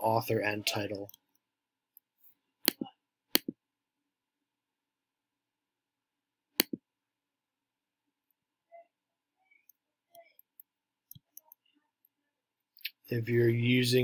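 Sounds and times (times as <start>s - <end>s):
computer mouse clicks: 2.6s - 3.6s, 6.6s - 6.8s.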